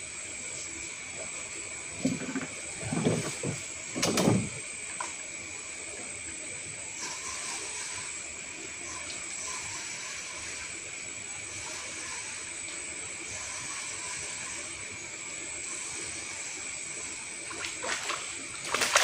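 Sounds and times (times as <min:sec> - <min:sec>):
night insects chorus: 0:00.0 - 0:19.0
short knocks and rustles: 0:02.0 - 0:04.6.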